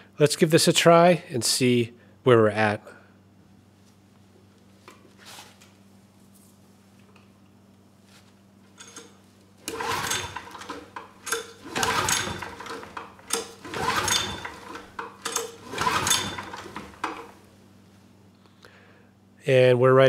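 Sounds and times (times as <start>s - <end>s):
engine cranked by recoil starter: 8.8s - 17.4s.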